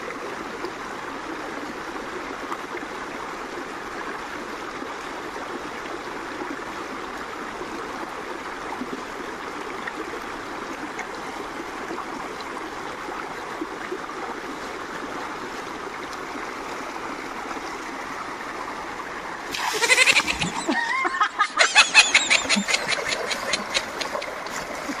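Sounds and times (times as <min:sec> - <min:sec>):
stream rushing over rocks: 0:00.0 - 0:25.0
hands splashing in water: 0:19.5 - 0:21.0
comedy sound effect: 0:19.6 - 0:23.9.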